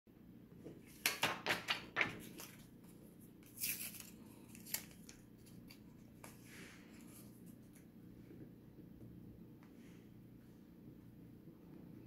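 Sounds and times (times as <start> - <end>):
foil sachet crinkling and tearing: 3.4 - 6.1.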